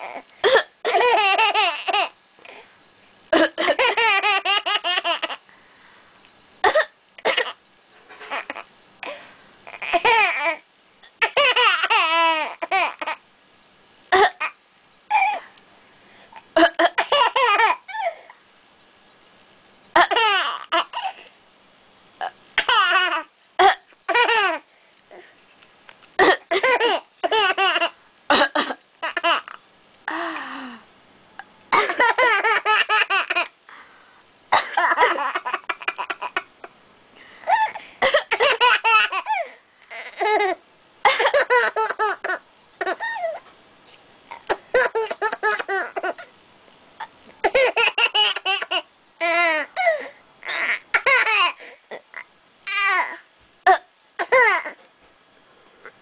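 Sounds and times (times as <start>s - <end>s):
baby coughing: 0.1s - 1.7s, 3.4s - 4.1s, 6.6s - 7.6s, 14.1s - 15.4s, 16.6s - 18.1s, 22.6s - 24.6s, 26.2s - 29.4s, 31.7s - 33.1s, 34.5s - 36.3s, 37.5s - 43.4s, 44.3s - 46.3s, 47.4s - 51.6s, 53.7s - 54.8s
baby laughing: 0.9s - 2.2s, 3.6s - 5.4s, 11.2s - 13.2s, 20.0s - 21.1s, 22.6s - 23.3s, 24.1s - 24.6s, 26.5s - 28.0s, 31.8s - 33.5s, 34.8s - 36.5s, 38.4s - 43.4s, 44.8s - 46.3s, 47.5s - 49.7s, 50.4s - 51.6s.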